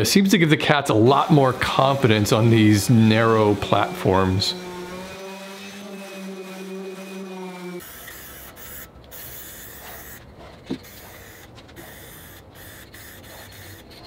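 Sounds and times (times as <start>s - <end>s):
power sander humming: 0.9s - 10.2s
aerosol spray can hissing: 7.8s - 10.2s, 10.8s - 13.9s.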